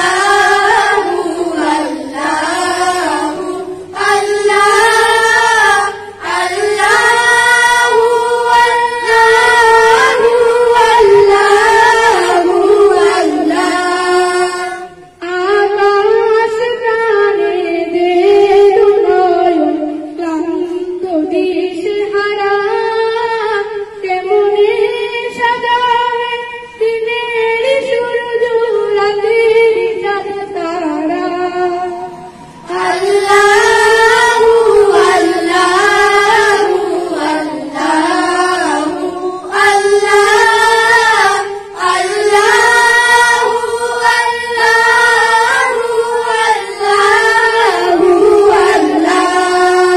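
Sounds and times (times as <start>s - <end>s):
children singing unaccompanied: 0.0s - 16.6s, 31.7s - 49.9s.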